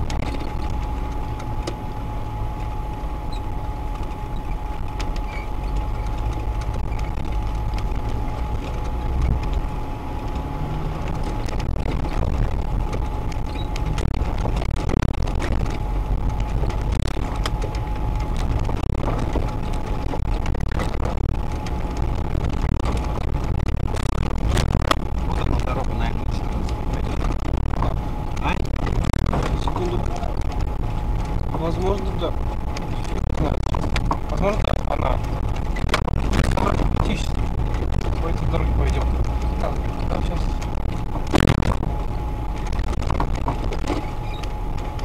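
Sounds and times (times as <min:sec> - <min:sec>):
knocks and rattles over bumps: 0:00.0 - 0:45.0
thin steady whine: 0:00.0 - 0:45.0
vehicle engine rumbling: 0:00.0 - 0:45.0.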